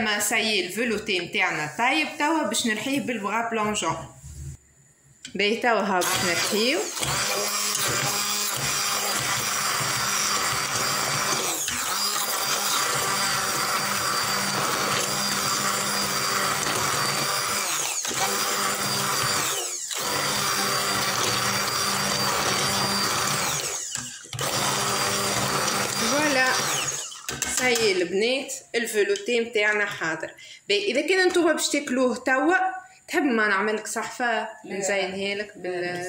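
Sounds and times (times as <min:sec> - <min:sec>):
immersion blender whirring in soup: 0:06.0 - 0:27.7.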